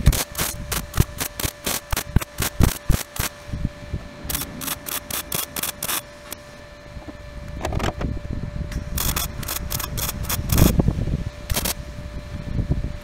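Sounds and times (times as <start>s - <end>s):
welder arc bursts: 0.0s - 6.4s, 8.7s - 12.0s.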